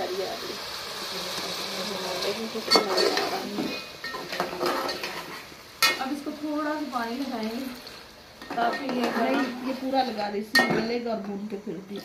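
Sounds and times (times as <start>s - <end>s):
faint sizzle: 0.0s - 12.0s
metal spoon scraping a pot: 2.7s - 6.0s.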